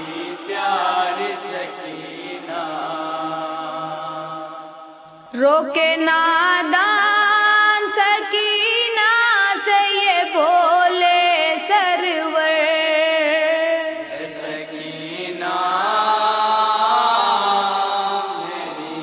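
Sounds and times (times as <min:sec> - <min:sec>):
lower voices chanting: 0:00.0 - 0:05.4, 0:13.9 - 0:19.0
boy chanting: 0:05.3 - 0:19.0.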